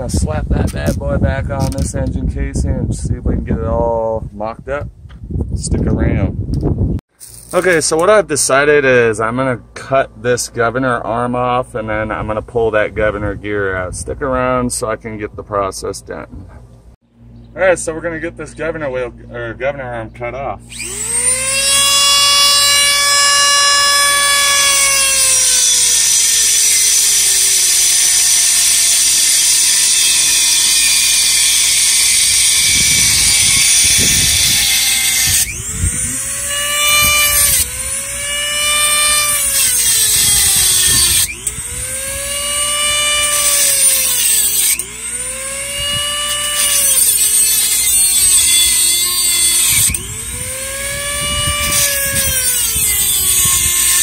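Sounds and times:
cutoff wheel grinding metal: 0:20.7 - 0:54.0
rotary tool motor whine: 0:20.7 - 0:54.0.

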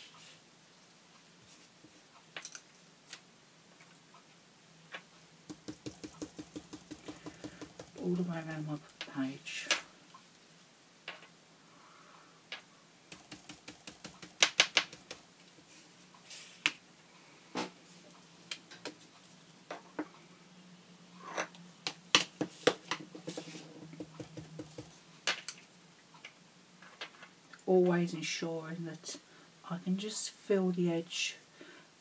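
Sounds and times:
knocks of stencil handling: 0:05.5 - 0:08.0
paint brush tapping through stencil: 0:05.5 - 0:08.3, 0:13.1 - 0:15.3.

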